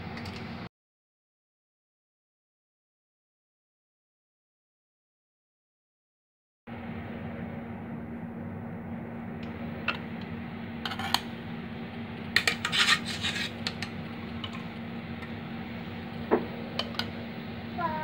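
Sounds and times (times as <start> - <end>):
steady low hum: 6.7 - 18.0
metal utensil scraping pot: 10.8 - 11.3, 12.4 - 14.6.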